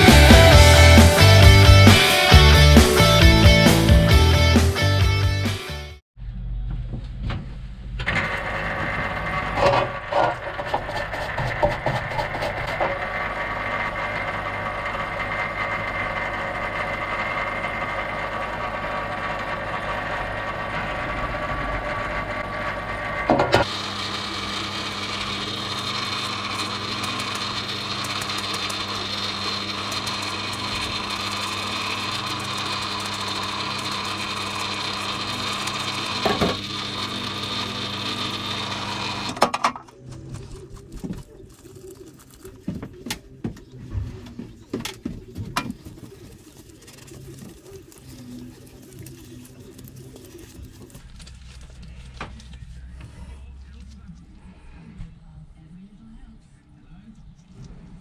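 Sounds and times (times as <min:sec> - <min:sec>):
parts washer pump running: 0:00.0 - 0:04.6, 0:08.0 - 0:53.2
brush scrubbing metal pedal: 0:09.6 - 0:12.9, 0:44.0 - 0:51.0.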